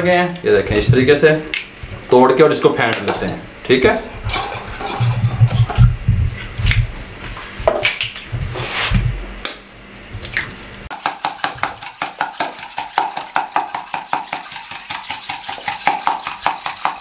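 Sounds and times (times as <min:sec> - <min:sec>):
whisk beating eggs in a bowl: 0:10.9 - 0:17.0.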